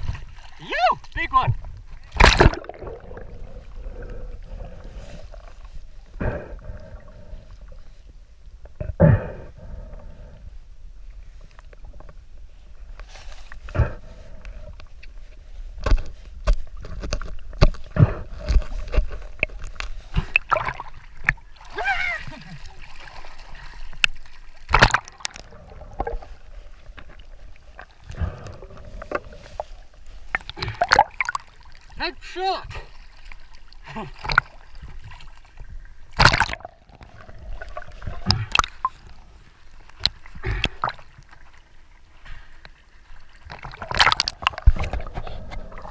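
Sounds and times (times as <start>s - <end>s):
sea water sloshing: 0.0s - 8.1s, 11.3s - 45.9s
short loud splashes: 2.1s - 3.0s
underwater knocks and clicks: 15.8s - 21.4s, 27.8s - 29.7s, 36.2s - 39.1s, 43.5s - 45.9s.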